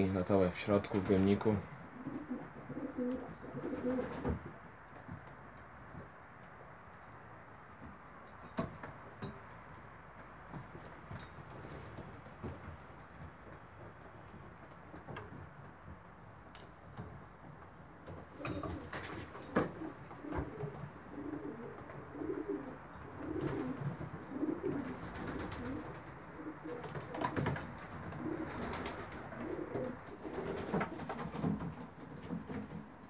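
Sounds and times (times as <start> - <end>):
pigeons cooing: 1.7 - 4.5, 18.2 - 32.2.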